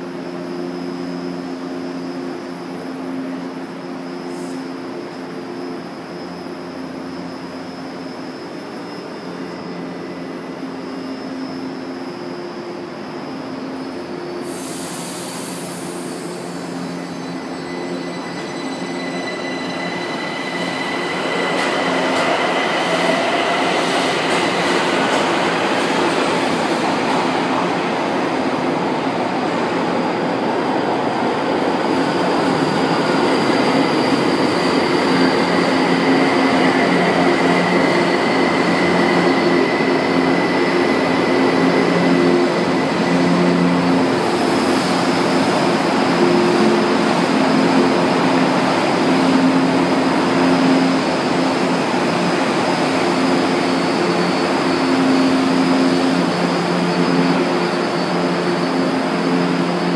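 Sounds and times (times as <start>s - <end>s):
train pulling into station: 0.0s - 59.9s
high wheel squeal: 14.6s - 25.8s, 31.9s - 48.4s.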